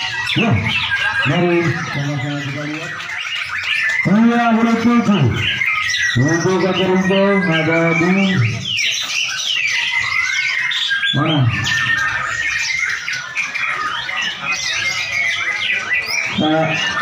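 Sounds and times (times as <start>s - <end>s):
songbirds singing: 0.0s - 17.0s.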